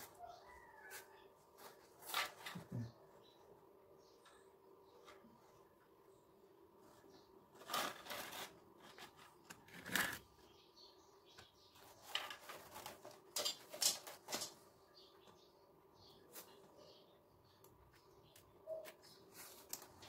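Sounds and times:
plastic hose scraping and rustling: 7.5 - 10.3, 11.8 - 14.6.

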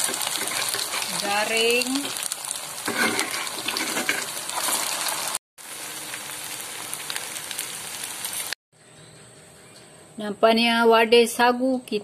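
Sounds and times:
food deep-frying in hot oil: 0.0 - 8.6.

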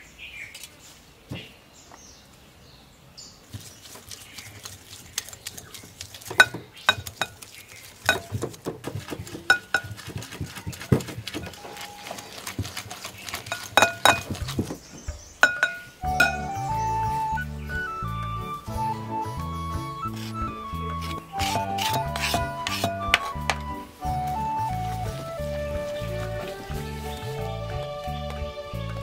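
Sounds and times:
whisk clinking on glass bowl: 6.4 - 7.4, 9.4 - 10.1, 13.3 - 14.3, 15.4 - 16.5, 21.4 - 23.6.

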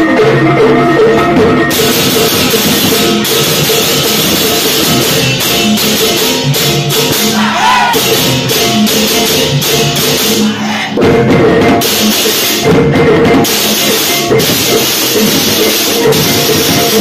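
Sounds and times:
drums beating: 0.0 - 17.0
gongs ringing: 1.7 - 10.5
hand cymbals clashing: 1.7 - 10.5, 13.5 - 17.0.

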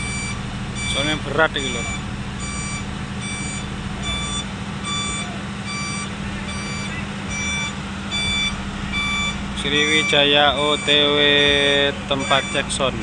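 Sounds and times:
low engine hum: 0.0 - 13.0
truck reversing alarm beeping: 0.0 - 13.0.

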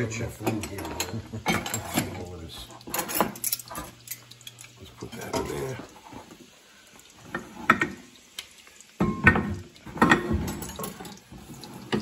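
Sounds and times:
dishes clattering on countertop: 0.4 - 4.3, 7.2 - 8.0, 9.0 - 12.0.

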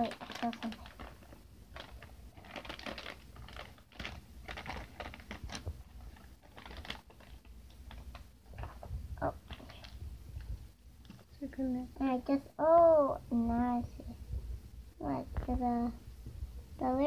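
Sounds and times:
packaging rustling and crinkling: 0.0 - 11.2.

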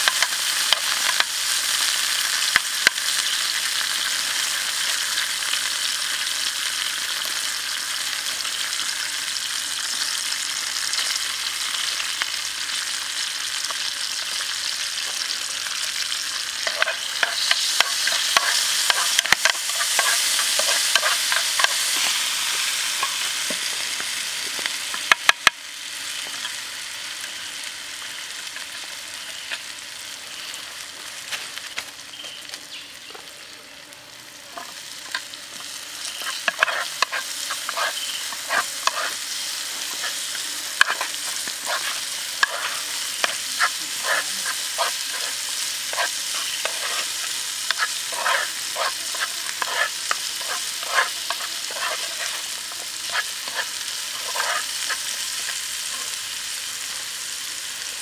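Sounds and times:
food sizzling in hot oil: 0.0 - 58.0
metal spoon scraping a pan: 16.0 - 23.2, 34.5 - 56.2.

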